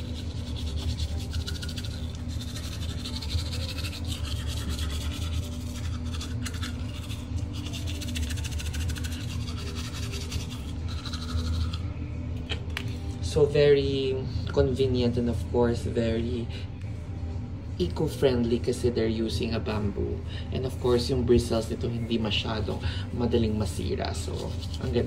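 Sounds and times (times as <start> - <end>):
toothbrush scrubbing teeth: 0.0 - 12.1, 23.8 - 25.0
low hum: 0.0 - 25.0.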